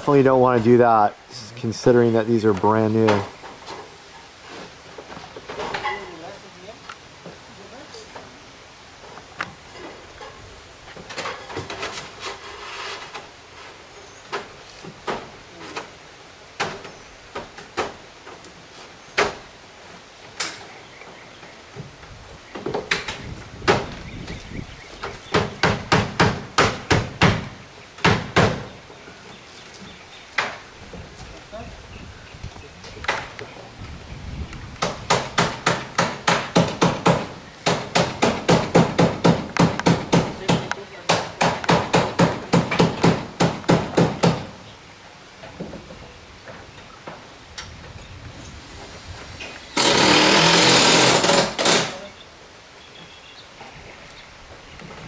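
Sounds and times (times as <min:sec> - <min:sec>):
power tool running: 0:49.8 - 0:52.0.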